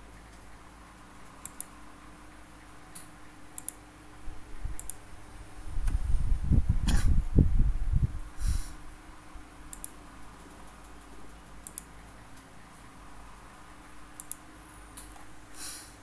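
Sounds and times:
low room hum: 0:00.0 - 0:16.0
computer mouse clicks: 0:01.2 - 0:01.8, 0:02.9 - 0:03.8, 0:04.7 - 0:05.0, 0:09.7 - 0:12.5, 0:14.2 - 0:14.4.

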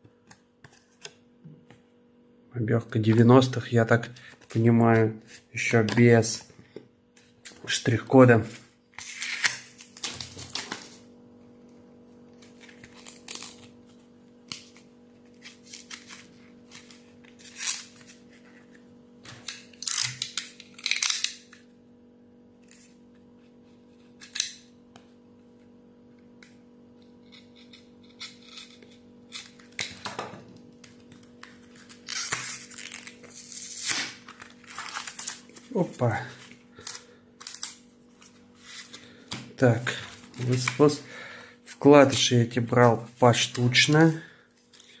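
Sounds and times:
faint steady hum: 0:00.0 - 0:45.0
paper and tape rustling: 0:09.0 - 0:11.0, 0:31.1 - 0:39.2, 0:39.9 - 0:41.0.

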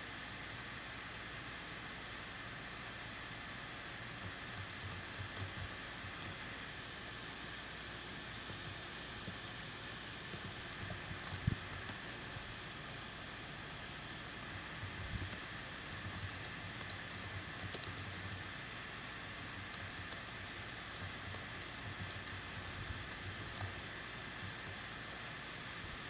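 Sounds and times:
electric fan hiss and hum: 0:00.0 - 0:26.0
faint clicks and ticks: 0:03.9 - 0:06.9, 0:08.3 - 0:12.6, 0:13.9 - 0:26.0.

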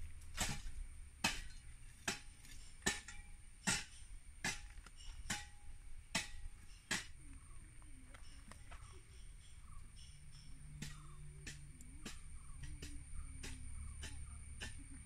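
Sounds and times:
crickets chirping: 0:06.5 - 0:15.0.

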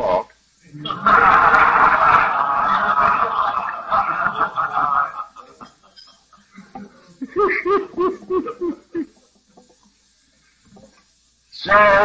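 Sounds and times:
cassette tape hiss: 0:00.0 - 0:12.0
audience of men laughing: 0:00.8 - 0:09.2
man laughing alone: 0:07.2 - 0:09.2.

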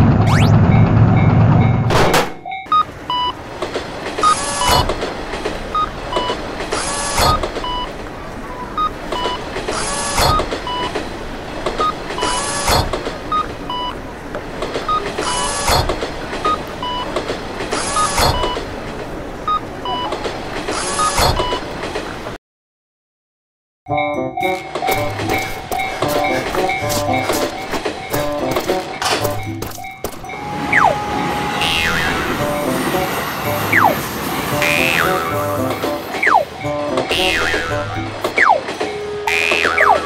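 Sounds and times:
train rumbling past: 0:00.0 - 0:22.4, 0:24.3 - 0:40.0
wheels clacking over rail joint: 0:03.3 - 0:22.4, 0:24.4 - 0:31.0, 0:31.6 - 0:40.0
two-tone electronic beep: 0:30.3 - 0:32.0.

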